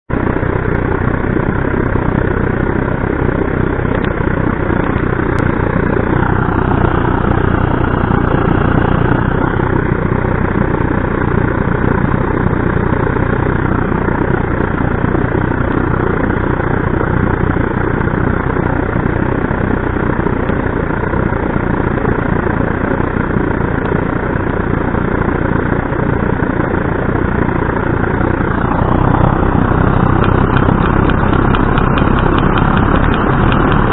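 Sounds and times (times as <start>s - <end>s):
blowlamp flame rushing: 27.9s - 33.9s.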